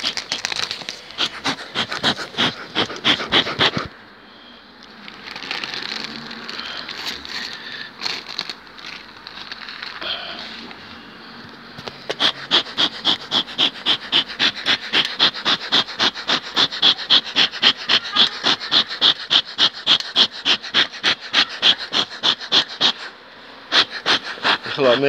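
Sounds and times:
smoke gun puffing: 0.0s - 3.9s, 11.8s - 23.1s, 23.7s - 24.8s.

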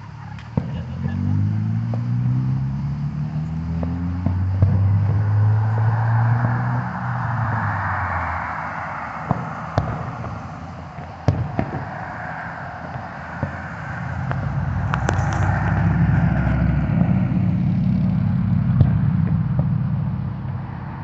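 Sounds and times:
tyre noise of passing car: 0.0s - 21.0s
car engine running: 0.1s - 8.1s, 13.2s - 20.6s
fireworks bangs: 0.2s - 2.7s, 3.8s - 20.2s.

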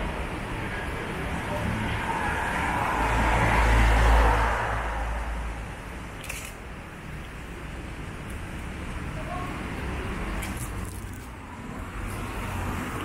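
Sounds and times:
vehicle passing: 0.0s - 6.4s, 9.6s - 13.0s
road traffic hum: 0.0s - 13.0s.

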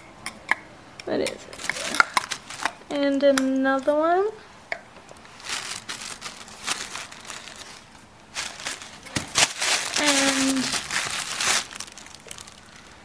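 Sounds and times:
tissue paper rustling and crinkling: 1.7s - 2.7s, 5.3s - 13.0s.

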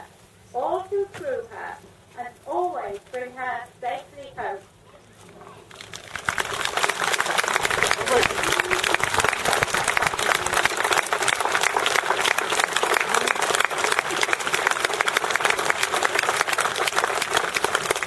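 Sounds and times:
crowd applauding: 5.6s - 18.0s.

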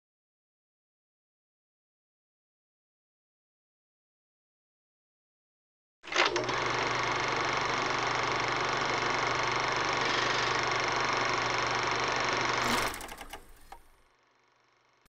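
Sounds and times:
film projector whirring: 6.1s - 15.0s
projector clicking flutter: 12.6s - 14.0s.

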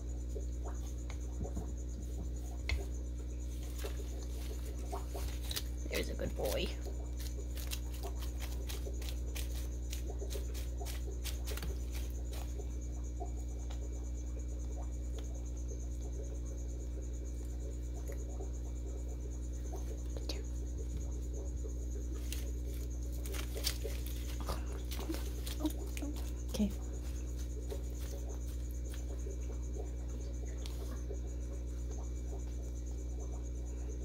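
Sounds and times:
steady low hum: 0.0s - 34.0s
lizard crunching egg: 3.6s - 12.7s, 21.4s - 29.6s.

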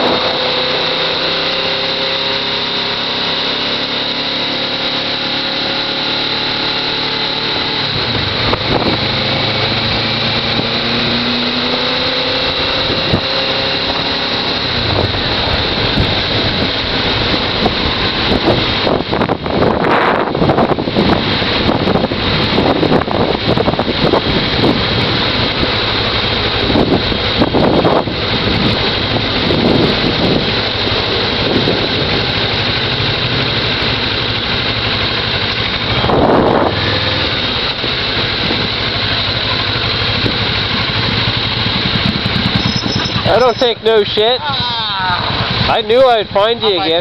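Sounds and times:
motorcycle engine running: 0.0s - 47.0s
wind noise on microphone: 7.8s - 34.1s, 34.7s - 43.9s.

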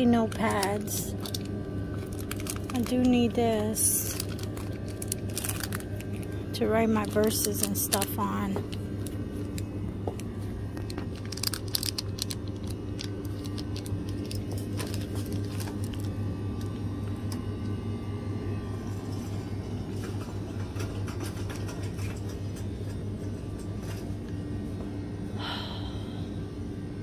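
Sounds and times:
low rumble and hum of store: 0.0s - 27.0s
plastic wrapper clicks and rattles: 0.3s - 3.2s, 4.1s - 6.3s, 10.2s - 16.7s.

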